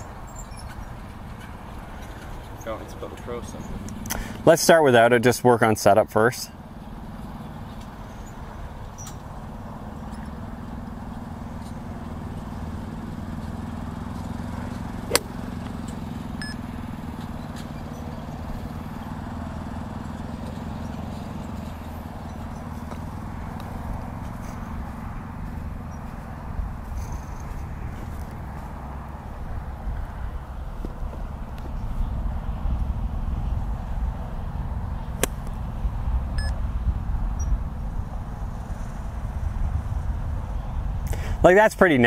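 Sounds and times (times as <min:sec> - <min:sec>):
golf club striking ball: 0:14.2 - 0:17.8, 0:35.2 - 0:35.6.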